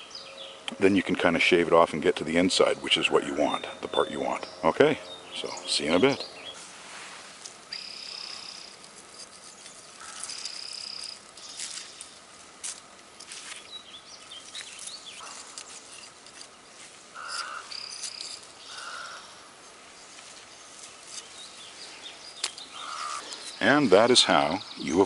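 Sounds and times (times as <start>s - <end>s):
gloved hands rustling plant: 6.5s - 18.8s, 19.8s - 23.7s
high thin held calls: 7.7s - 12.2s
knife scraping plant stalk: 8.3s - 12.0s, 14.5s - 18.6s.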